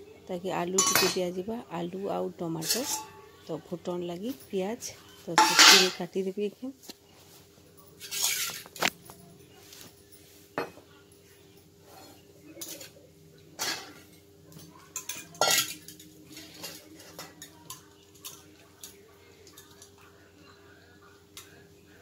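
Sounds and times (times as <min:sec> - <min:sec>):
knife scraping a steel bowl: 0:08.0 - 0:08.8.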